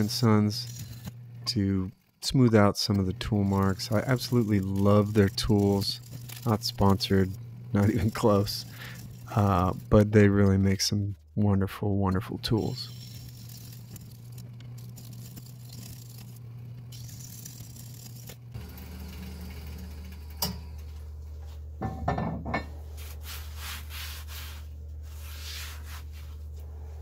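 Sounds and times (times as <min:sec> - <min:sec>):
scraper shaving wood bowl: 0:00.0 - 0:11.4, 0:12.1 - 0:19.9, 0:23.0 - 0:26.5
wood lathe humming: 0:02.9 - 0:10.6, 0:12.6 - 0:21.0
short rubbing strokes: 0:22.9 - 0:27.0.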